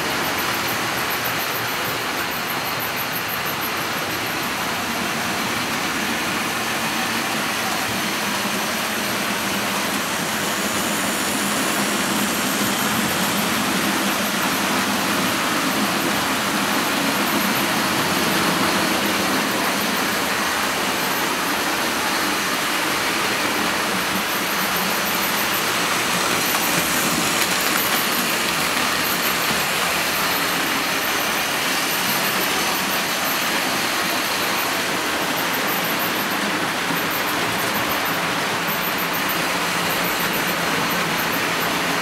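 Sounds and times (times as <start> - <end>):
model train wheels rumbling on rails: 0.0 - 42.0.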